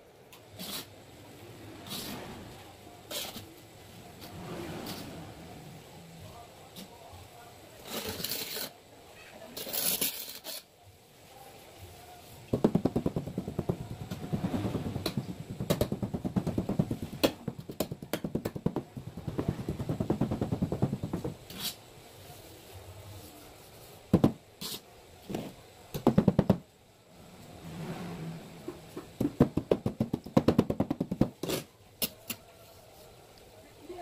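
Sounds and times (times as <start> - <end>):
trowel scraping mortar: 7.8 - 8.8
sharp knocks: 12.5 - 21.4.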